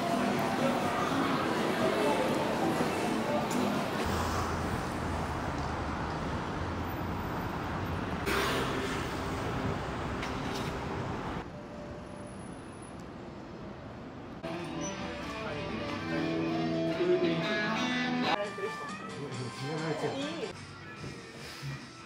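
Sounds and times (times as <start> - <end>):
cars passing: 0.0 - 18.4
guitar playing: 14.4 - 18.4.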